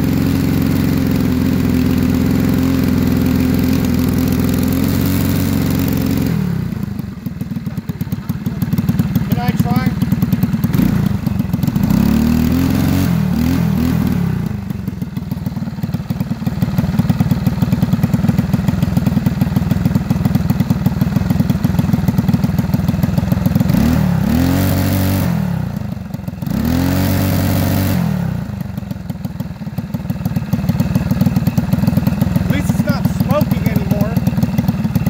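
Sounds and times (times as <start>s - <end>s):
small engine revving: 0.0s - 7.0s, 7.7s - 14.8s, 23.4s - 28.9s, 31.5s - 35.0s.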